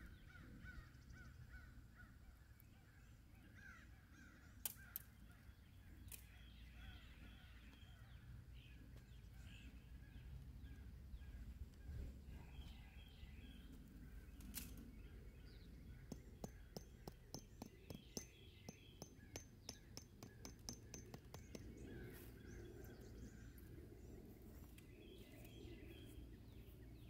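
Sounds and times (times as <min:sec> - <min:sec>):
distant birds calling: 0:00.0 - 0:26.7
tent stakes and poles clicking: 0:14.3 - 0:15.0, 0:16.1 - 0:21.8.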